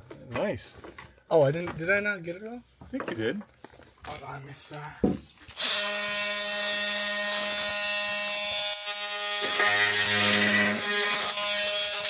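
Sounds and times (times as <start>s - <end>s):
oscillating multi-tool cutting wood: 5.5s - 12.0s.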